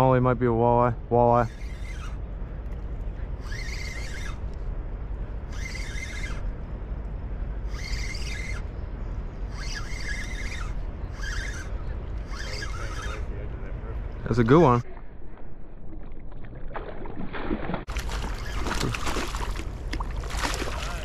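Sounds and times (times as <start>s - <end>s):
steady low rumble: 0.0s - 21.0s
fishing reel whirring: 1.2s - 2.2s, 3.4s - 4.6s, 5.4s - 6.5s, 7.6s - 8.8s, 9.4s - 13.4s, 18.0s - 19.7s, 20.4s - 21.0s.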